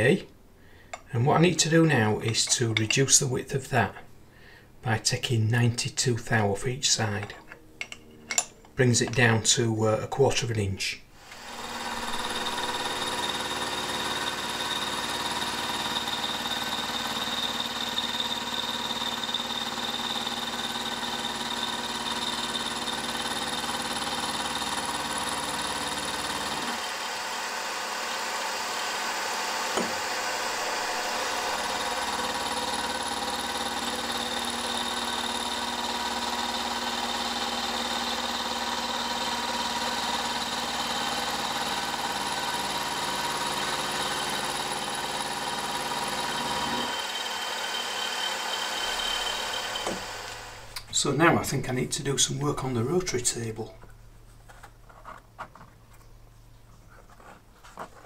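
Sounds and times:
end mill cutting steel: 11.2 - 53.2
milling machine whine: 11.3 - 50.8.

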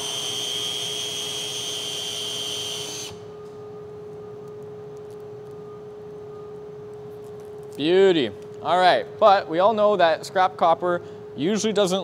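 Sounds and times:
cordless drill whining: 0.0 - 3.2
low steady hum: 2.8 - 12.0.

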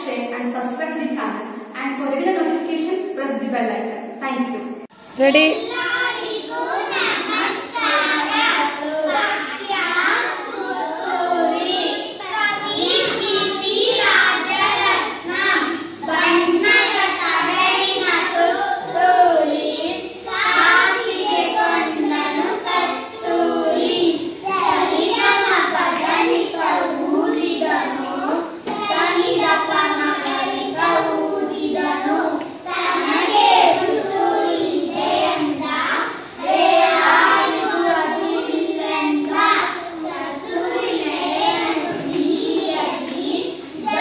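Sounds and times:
children singing in unison: 5.6 - 44.0.

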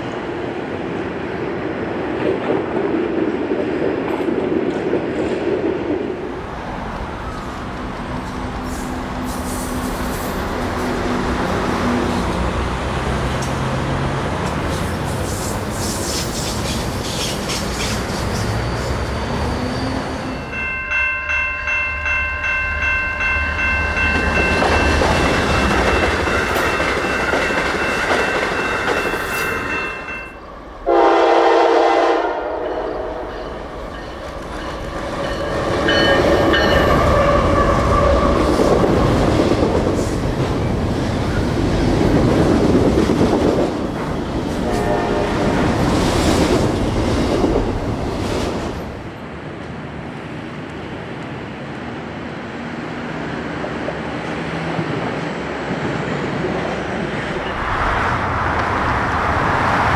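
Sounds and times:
diesel train rolling past: 0.0 - 59.9
freight train running past: 0.0 - 59.9
locomotive horn chord: 30.9 - 33.4, 44.6 - 45.6
lower-pitched horn blast: 30.9 - 33.4, 44.6 - 45.6.

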